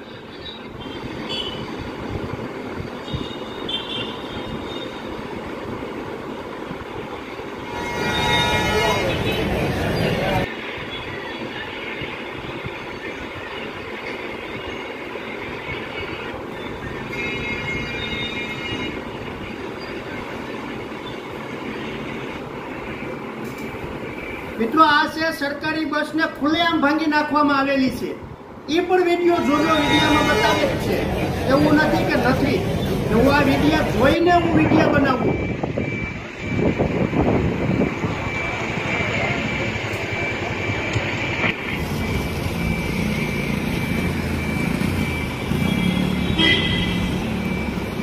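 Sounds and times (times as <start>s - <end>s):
rumbling street noise: 0.0s - 48.0s
crowd hubbub: 7.7s - 12.1s, 29.3s - 36.5s.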